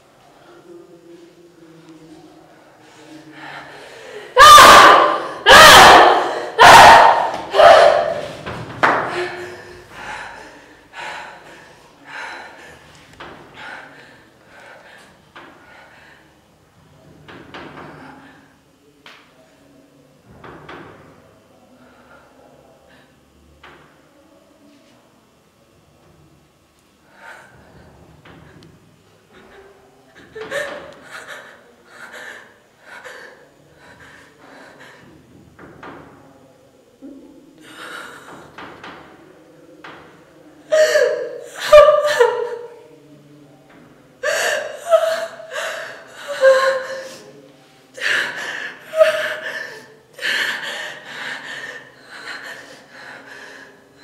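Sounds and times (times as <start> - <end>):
woman sobbing: 40.7 - 42.8, 44.2 - 47.2, 48.0 - 53.3.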